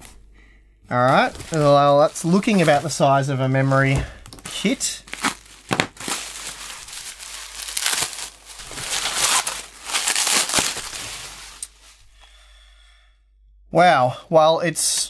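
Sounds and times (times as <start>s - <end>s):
package being torn open: 4.3s - 11.8s.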